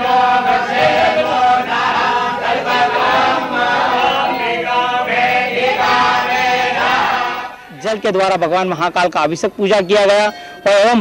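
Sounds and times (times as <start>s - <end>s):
men chanting in unison: 0.0s - 8.1s.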